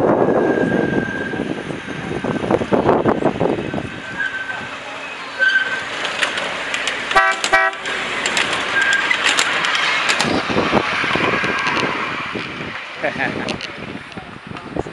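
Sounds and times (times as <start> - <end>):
train wheels clicking on track: 0.4 - 14.8
train horn toots: 7.1 - 7.8.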